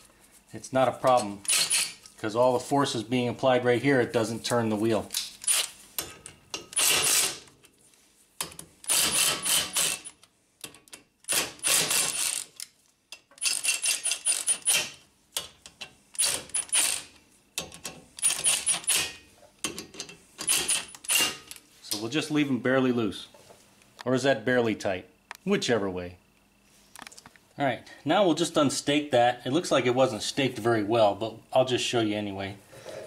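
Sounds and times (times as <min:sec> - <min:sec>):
impact wrench hammering: 0:08.4 - 0:10.2.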